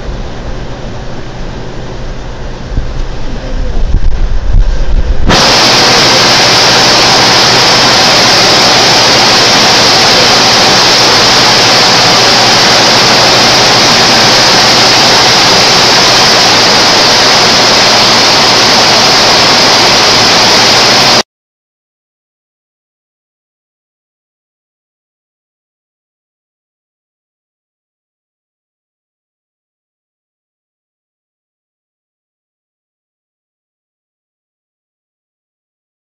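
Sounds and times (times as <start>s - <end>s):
loud rushing hiss: 0.0s - 21.2s.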